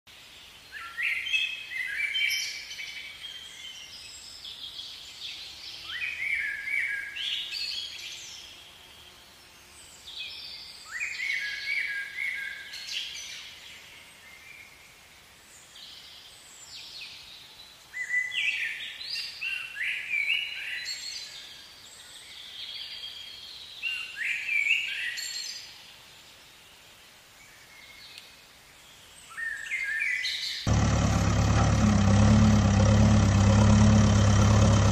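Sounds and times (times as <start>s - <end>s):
faint background noise: 0.1s - 30.6s.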